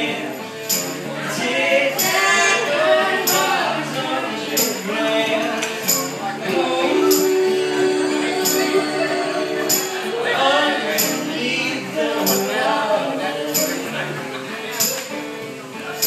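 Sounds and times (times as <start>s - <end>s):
people singing in harmony: 0.0s - 14.9s
acoustic guitar: 0.0s - 16.0s
sharp high percussive hits: 0.7s - 1.1s, 1.9s - 3.7s, 7.0s - 10.2s, 11.0s - 11.4s.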